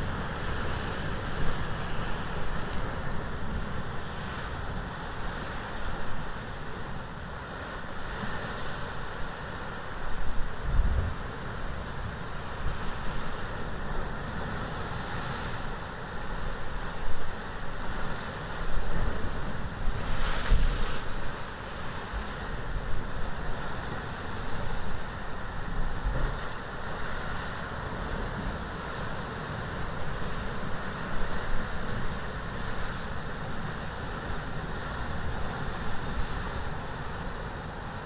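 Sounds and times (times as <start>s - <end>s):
ocean surf washing in: 0.0s - 38.0s
wind rumble on microphone: 10.1s - 38.0s.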